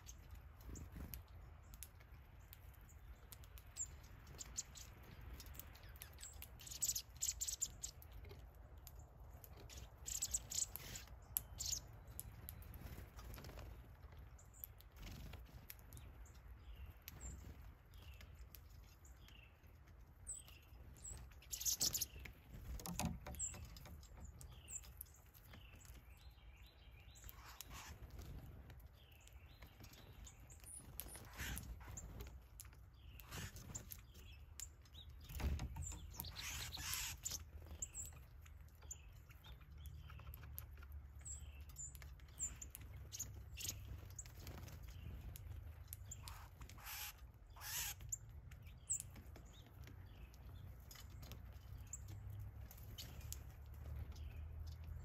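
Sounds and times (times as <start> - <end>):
songbirds chirping: 0.0 - 55.0
wings fluttering: 12.2 - 16.2, 27.3 - 28.8, 29.6 - 34.2, 35.2 - 38.2.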